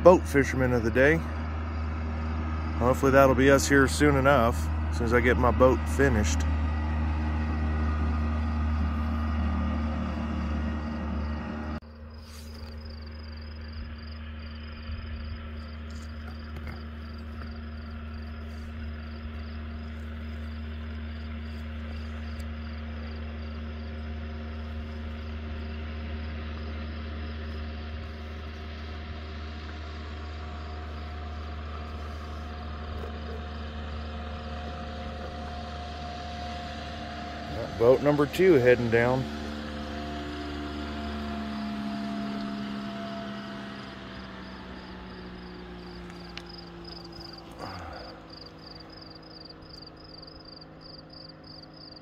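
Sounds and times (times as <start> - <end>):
outboard motor droning: 0.0 - 52.0
insect chirping: 11.8 - 27.8, 30.6 - 32.4, 43.3 - 52.0.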